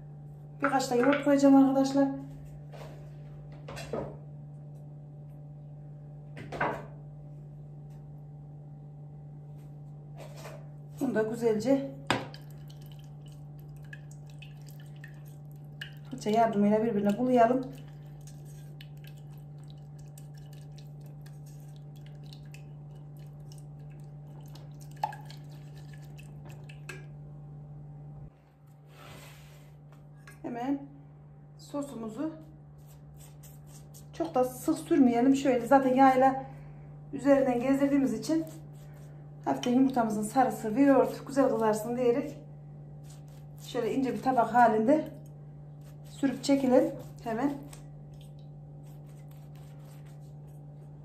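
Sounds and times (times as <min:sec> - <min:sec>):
steady low hum: 0:00.0 - 0:51.0
brush stirring wet clicks: 0:12.3 - 0:27.1, 0:45.0 - 0:50.8.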